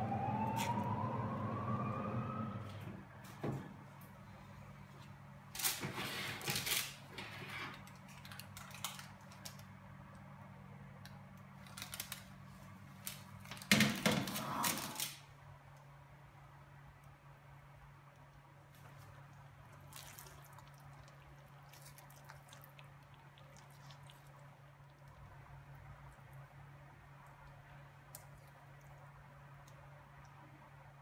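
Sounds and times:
low steady hum: 0:00.0 - 0:06.0, 0:06.6 - 0:31.0.

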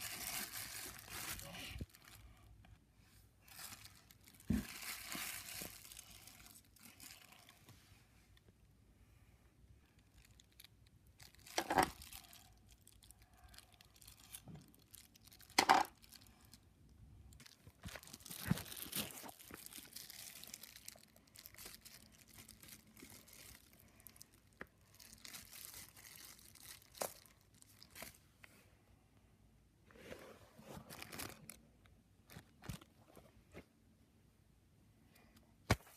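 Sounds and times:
plastic bag crinkling: 0:00.0 - 0:02.4, 0:03.4 - 0:07.6, 0:10.0 - 0:16.6, 0:17.3 - 0:28.2, 0:30.8 - 0:33.0.

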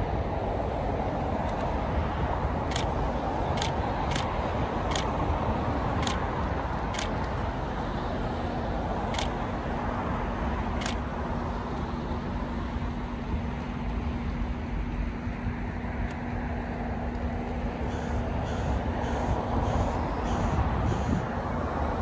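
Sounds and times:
distant traffic rumble: 0:00.0 - 0:22.0
steady low hum: 0:00.0 - 0:22.0
sharp high ticks: 0:02.6 - 0:05.2, 0:05.9 - 0:07.4, 0:09.1 - 0:09.4, 0:10.8 - 0:11.1.

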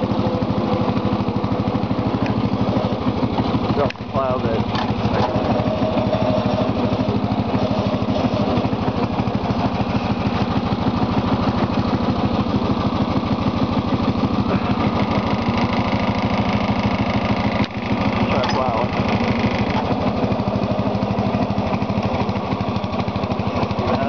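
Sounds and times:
lawn tractor engine running: 0:00.0 - 0:24.0.

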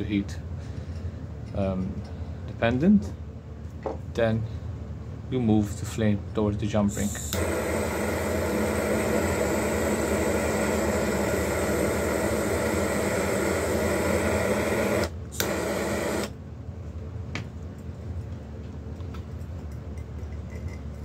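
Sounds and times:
soldering torch flame hissing: 0:06.9 - 0:16.4.

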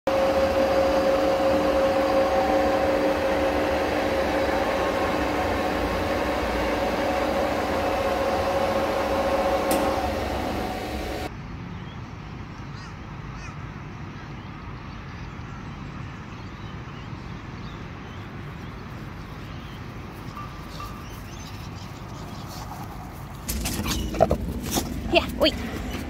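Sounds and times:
lathe running with whine: 0:00.1 - 0:11.3.

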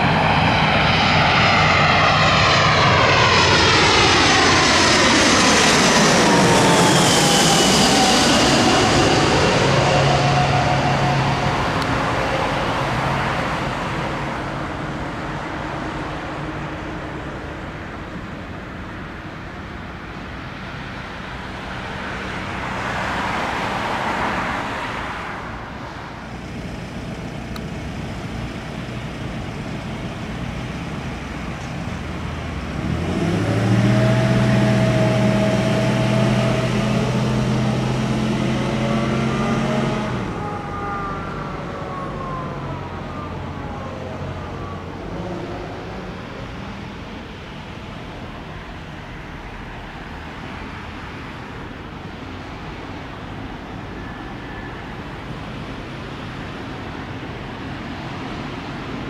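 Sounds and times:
rushing rumble: 0:00.0 - 0:17.5
jet airliner noise: 0:00.0 - 0:59.0
low engine hum with whine: 0:00.0 - 0:59.0.

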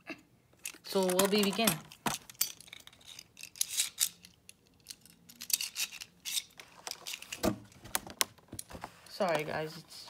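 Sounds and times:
light clicks and rustles of handling: 0:00.5 - 0:10.0.

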